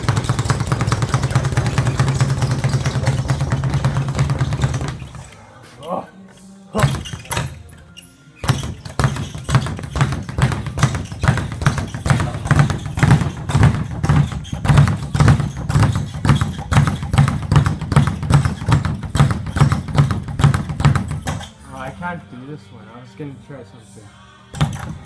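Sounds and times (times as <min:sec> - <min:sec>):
speed bag thuds: 0:00.0 - 0:05.3, 0:06.8 - 0:07.6, 0:08.4 - 0:21.5, 0:24.5 - 0:25.0.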